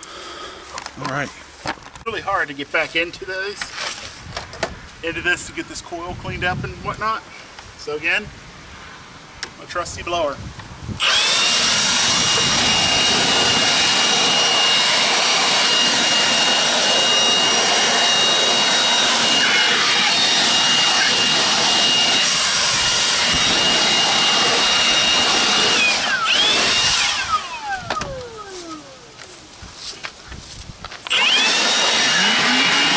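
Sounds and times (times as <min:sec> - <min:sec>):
leaf blower high whine: 0:11.0 - 0:32.9.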